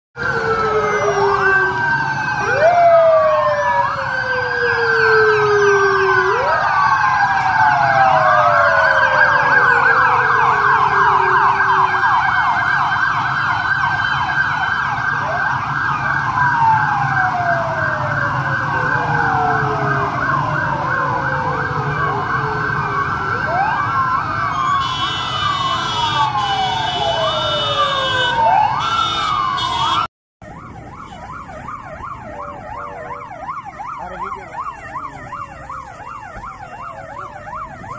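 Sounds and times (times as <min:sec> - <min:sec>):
fast warbling siren yelp: 0:00.2 - 0:37.9
low rumble of vehicle engines: 0:00.2 - 0:37.9
police sirens wailing: 0:00.2 - 0:37.9.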